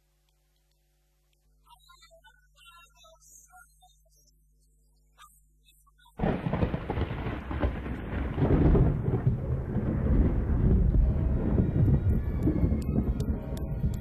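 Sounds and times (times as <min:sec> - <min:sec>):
deep rumble like thunder: 0:06.2 - 0:14.0.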